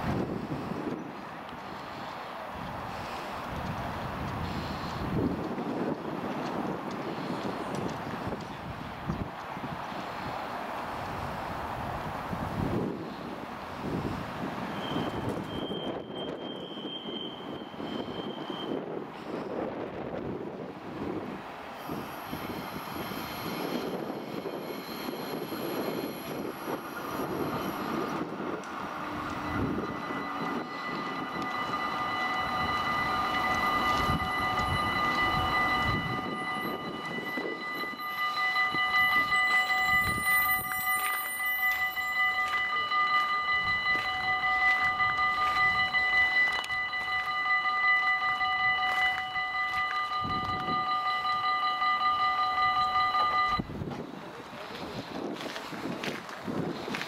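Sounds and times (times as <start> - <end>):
electric train rumbling on rails: 0.0 - 57.0
high multi-tone whine: 21.8 - 53.7.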